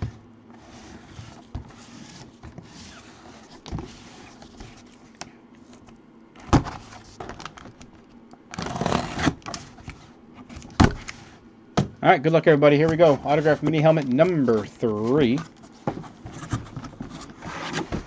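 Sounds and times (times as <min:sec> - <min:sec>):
cardboard sliding and rubbing: 0:00.0 - 0:05.1, 0:08.6 - 0:11.4, 0:12.9 - 0:18.0.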